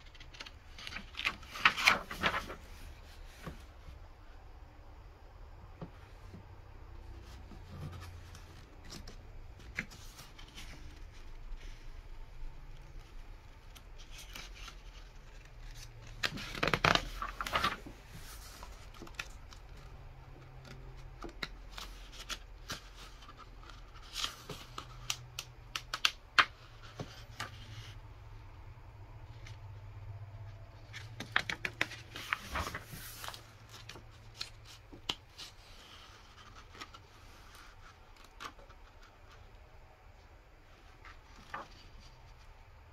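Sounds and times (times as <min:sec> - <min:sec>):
paper crinkling: 0:00.0 - 0:03.6, 0:07.2 - 0:27.6, 0:30.9 - 0:39.5, 0:40.9 - 0:42.5
paper pages rustling and turning: 0:00.0 - 0:03.9, 0:07.0 - 0:28.1, 0:29.2 - 0:42.8.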